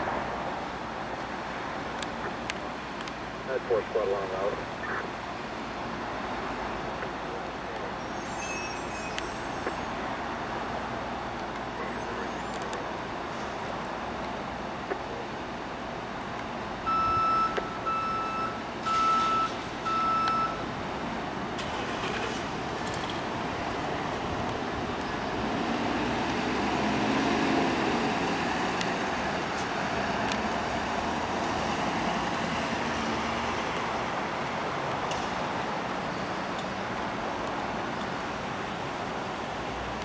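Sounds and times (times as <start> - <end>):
electronic warning beeps: 16.9 - 20.6
vehicle engine pulling away: 21.6 - 24.2, 24.8 - 33.7.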